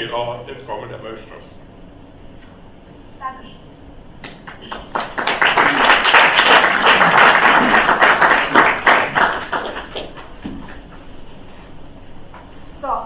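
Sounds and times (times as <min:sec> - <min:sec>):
audience applauding: 0:04.4 - 0:10.3.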